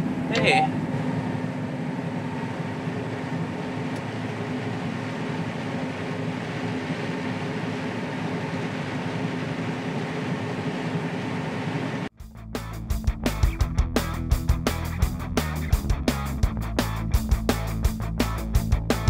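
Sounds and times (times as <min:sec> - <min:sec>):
combine harvester engine drone: 0:00.0 - 0:12.1.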